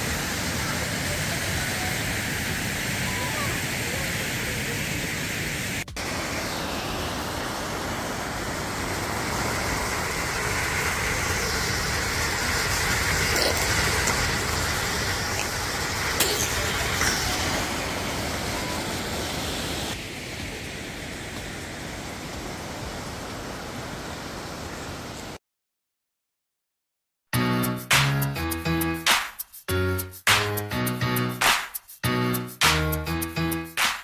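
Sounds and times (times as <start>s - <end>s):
stream rushing over rocks: 6.0s - 25.4s.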